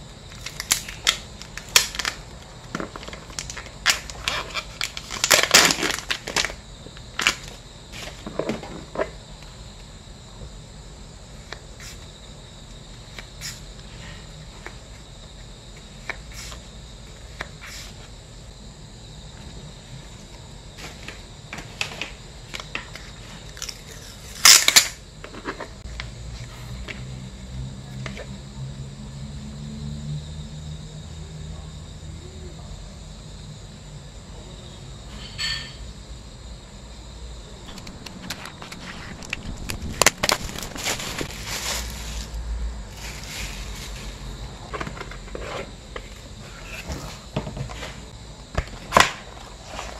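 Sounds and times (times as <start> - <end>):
plastic sleeves crinkling: 2.8 - 6.6, 37.7 - 42.4.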